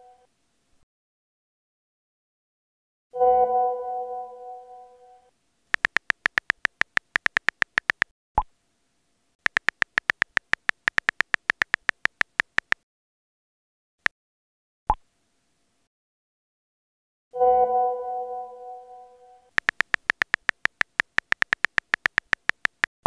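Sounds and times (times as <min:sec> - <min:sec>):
phone keyboard key clicks: 0:05.7 - 0:08.1, 0:09.4 - 0:12.8, 0:19.6 - 0:22.9
message sent pop: 0:05.8 - 0:08.1, 0:19.6 - 0:22.9.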